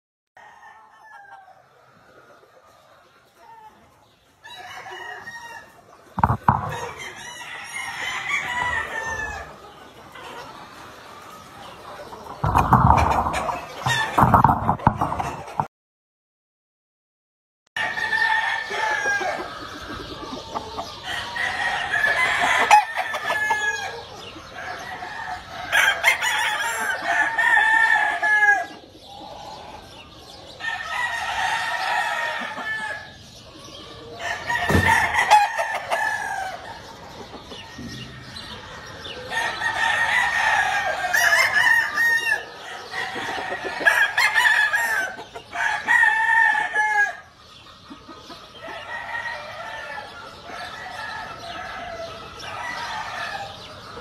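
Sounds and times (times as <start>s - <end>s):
chickens clucking: 0.4s - 15.7s, 17.8s - 54.0s
roosters crowing: 0.4s - 15.7s, 17.8s - 54.0s
sharp thump: 6.2s - 7.0s, 34.7s - 35.2s.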